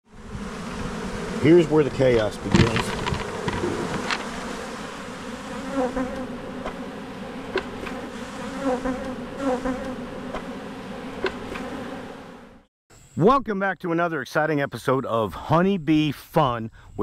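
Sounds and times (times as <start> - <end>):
honeybees buzzing: 0.0 - 12.7.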